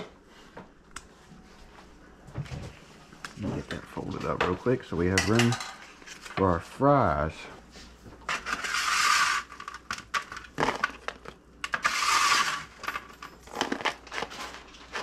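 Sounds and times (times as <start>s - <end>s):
dishes clicking and knocking: 4.3s - 6.0s.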